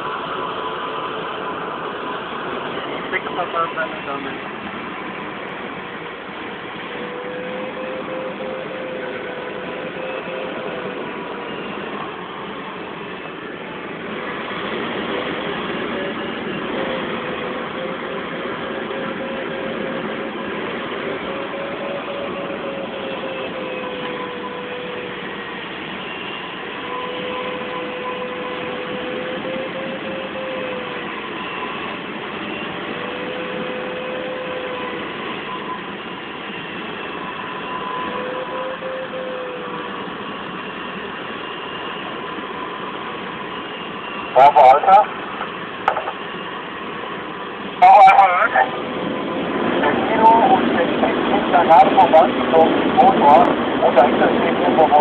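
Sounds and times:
wavering held tone: 6.9 - 12.6, 37.2 - 39.8.

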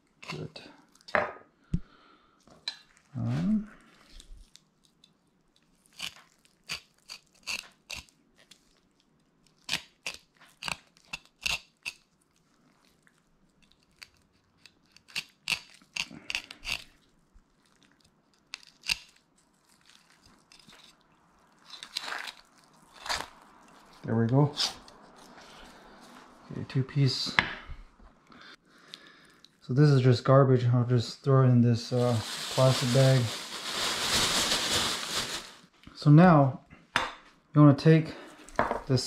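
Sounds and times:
knife crunching through fish bones: 5.8 - 8.8, 9.4 - 12.1, 13.6 - 17.0, 17.8 - 24.0.

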